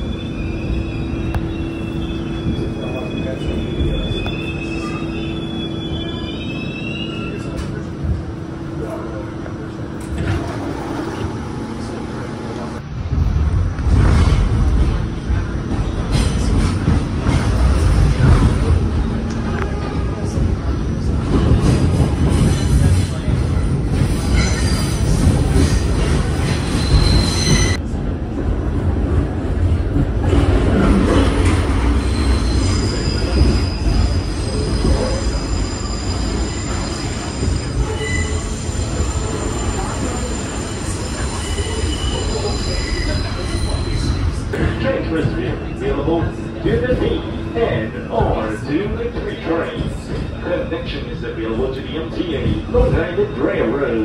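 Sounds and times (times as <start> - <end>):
subway car wheels rumbling: 0.0 - 54.0.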